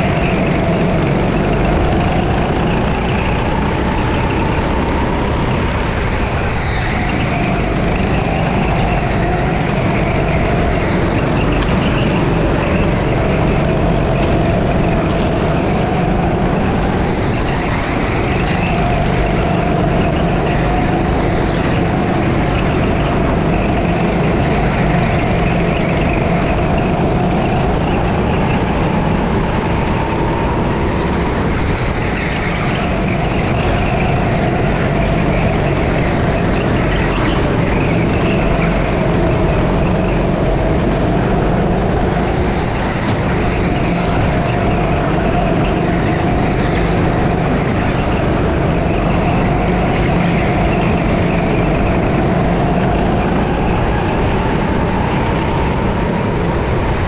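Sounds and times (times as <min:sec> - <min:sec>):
go-kart engine running hard: 0:00.0 - 0:57.0.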